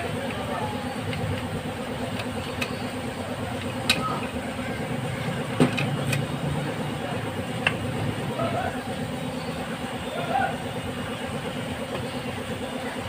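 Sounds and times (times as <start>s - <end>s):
engine and traffic rumble: 0.0s - 13.0s.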